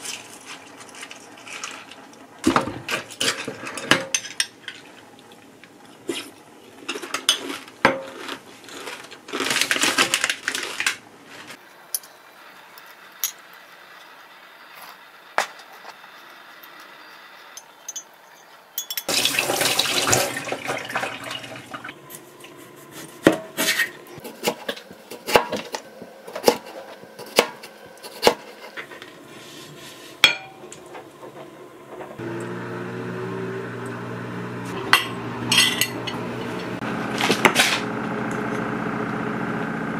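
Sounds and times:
metal spoon clinking glass bowl: 0:17.6 - 0:19.2, 0:34.9 - 0:36.2.

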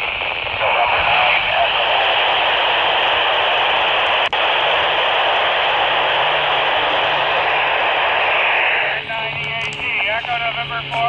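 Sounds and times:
radio static hiss: 0:00.0 - 0:11.0.

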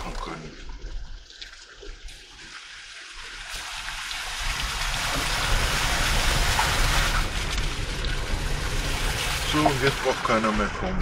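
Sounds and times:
tyres rolling over wet mud: 0:04.6 - 0:11.0
car low rumble: 0:05.0 - 0:11.0.

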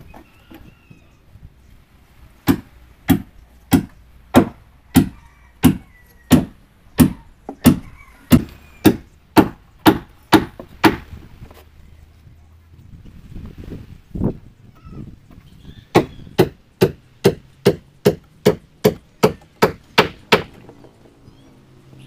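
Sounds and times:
heavy chopping into wood: 0:02.4 - 0:11.1, 0:15.9 - 0:20.6.

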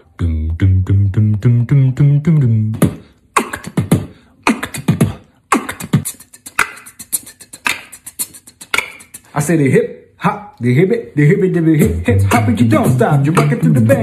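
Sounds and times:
hummed bass line: 0:00.0 - 0:03.0, 0:11.8 - 0:14.0
beatboxed drum beat: 0:00.0 - 0:09.4, 0:11.6 - 0:14.0.

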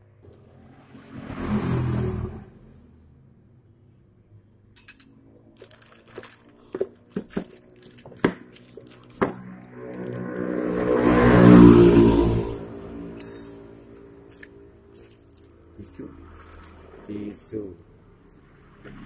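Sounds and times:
loud rough noise: 0:05.6 - 0:13.2
small parts clicking on tiled floor: 0:13.2 - 0:16.8.

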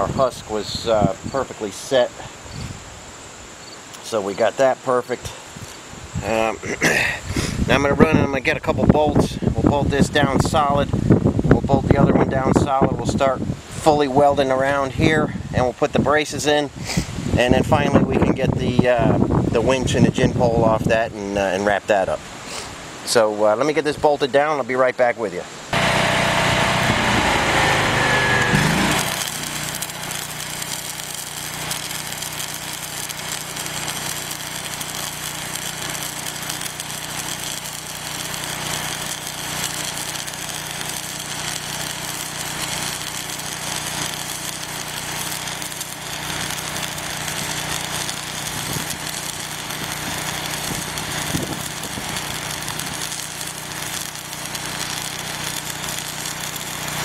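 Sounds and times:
welding arc crackling: 0:25.7 - 0:57.0
falling pitch sound: 0:25.8 - 0:29.5.

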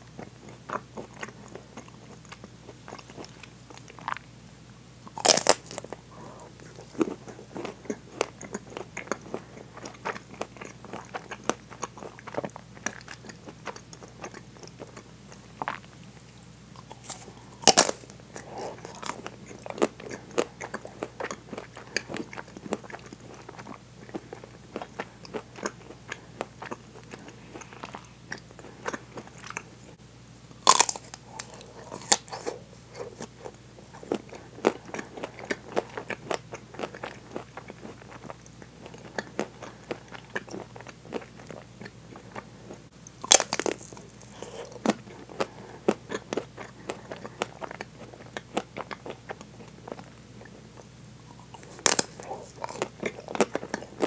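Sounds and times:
crackly chewing: 0:00.0 - 0:04.4, 0:05.0 - 0:30.0, 0:30.6 - 0:54.0
loud crunching bites: 0:05.2 - 0:05.9, 0:16.9 - 0:18.0, 0:30.6 - 0:32.5, 0:43.2 - 0:44.8.

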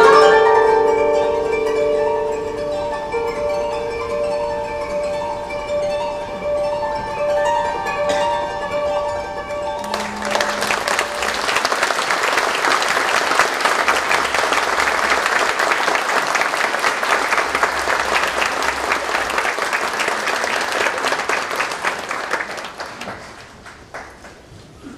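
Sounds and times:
koto notes: 0:00.0 - 0:19.6
audience applauding: 0:09.8 - 0:24.7.

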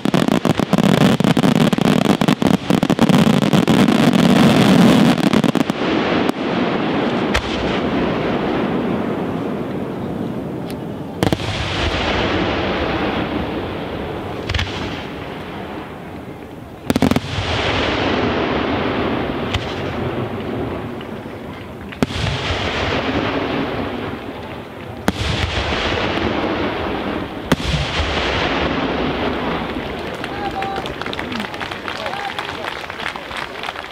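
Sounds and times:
rolling rumble and crackle: 0:19.2 - 0:33.9.

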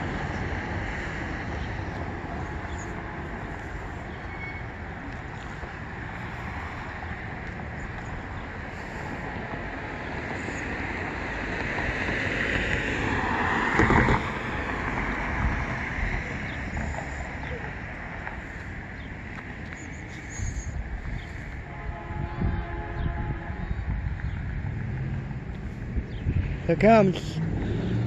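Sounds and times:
passing vehicle rush: 0:00.0 - 0:28.0
road traffic rumble: 0:00.0 - 0:28.0
wind on microphone: 0:07.8 - 0:18.9, 0:20.0 - 0:28.0.

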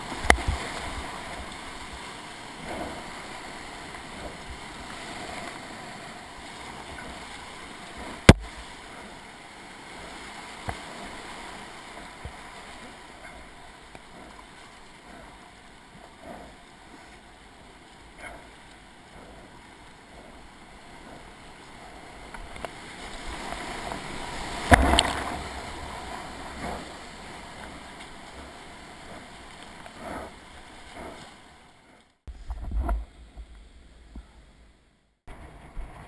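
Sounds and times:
whitewater rushing: 0:00.0 - 0:31.6
kayak knocking: 0:24.5 - 0:29.3.

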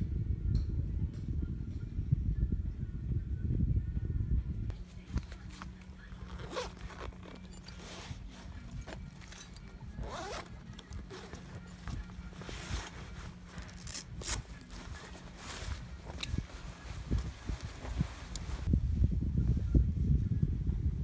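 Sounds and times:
scraping and handling noises: 0:04.7 - 0:18.7
zipper being pulled: 0:05.5 - 0:18.6.

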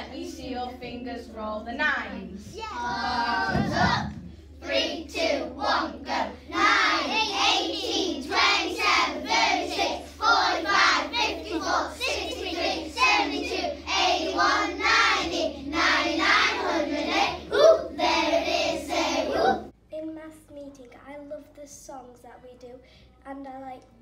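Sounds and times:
children singing together: 0:02.7 - 0:19.7.

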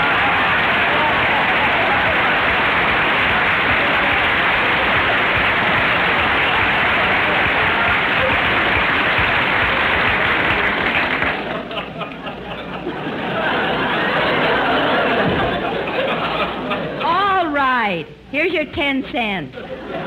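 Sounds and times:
audience laughing and applauding: 0:00.0 - 0:17.4.

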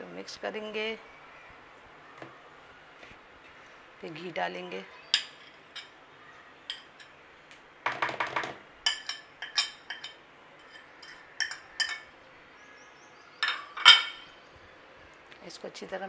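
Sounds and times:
cutlery clinking on glass dish: 0:05.1 - 0:06.0, 0:06.7 - 0:07.2, 0:08.8 - 0:12.1, 0:13.4 - 0:14.3
spoon scraping: 0:05.1 - 0:06.0, 0:06.7 - 0:07.2, 0:08.8 - 0:12.1.

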